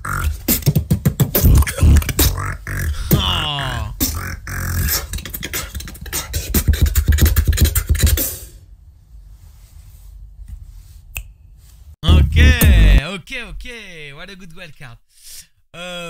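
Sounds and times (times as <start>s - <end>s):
person beatboxing: 0.0s - 8.5s, 12.0s - 13.7s.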